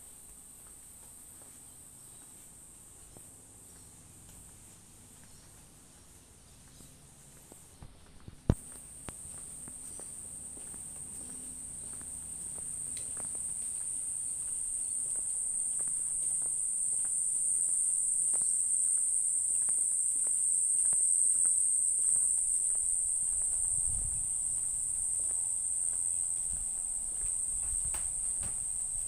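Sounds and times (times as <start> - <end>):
high-pitched insect trill: 8.6 - 29.0.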